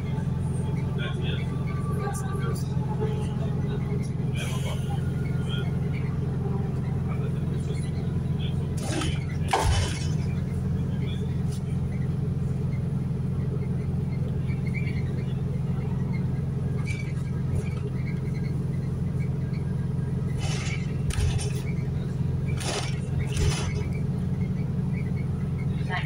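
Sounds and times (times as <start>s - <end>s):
bus drivetrain and road drone: 0.0s - 26.0s
short rattles: 20.3s - 24.1s.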